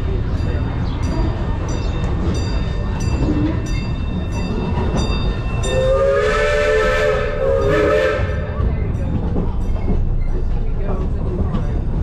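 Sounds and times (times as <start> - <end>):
rumble of moving train: 0.0 - 12.0
steam locomotive whistle: 5.7 - 8.6.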